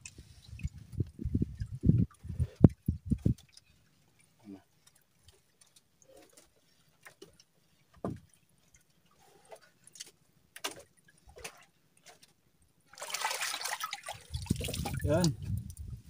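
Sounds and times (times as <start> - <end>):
water splashing: 0.0 - 15.7
light knocks and clicks on boat: 4.8 - 8.8.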